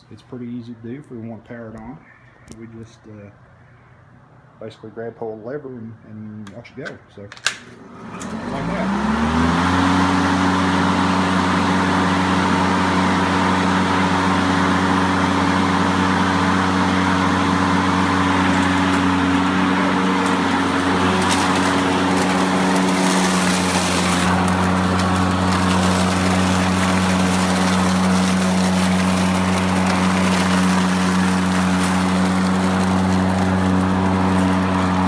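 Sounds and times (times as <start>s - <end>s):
electric lawn mower humming: 7.8s - 35.0s
crackling hiss of shredded clippings: 18.4s - 35.0s.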